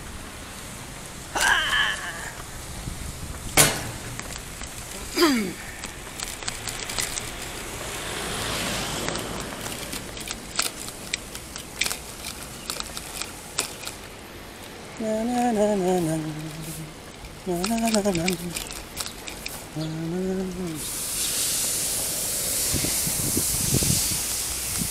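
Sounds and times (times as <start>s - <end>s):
wind and road noise: 0.0s - 24.9s
bicycle rattling clicks and knocks: 2.4s - 24.9s
vehicle passing: 2.4s - 24.9s
person speaking: 4.8s - 5.8s, 14.9s - 21.0s.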